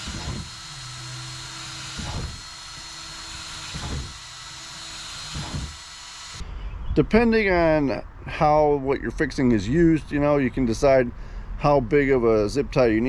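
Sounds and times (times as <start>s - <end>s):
cordless drill boring plastic: 0.0s - 6.4s.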